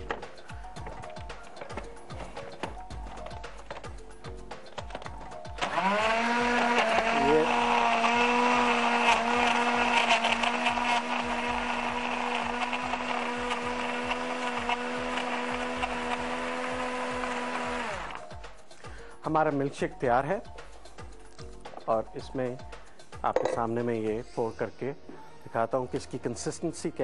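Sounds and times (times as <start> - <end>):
blender motor whining: 5.5 - 18.2.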